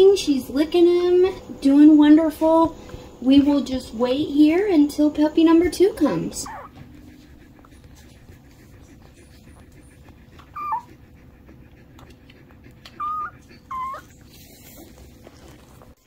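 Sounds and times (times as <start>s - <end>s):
puppy whimpering: 5.4s - 16.0s.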